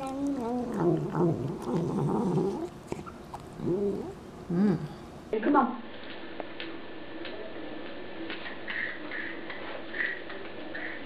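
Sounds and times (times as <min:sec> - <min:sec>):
cat murmuring vocal sounds: 0:00.0 - 0:05.0.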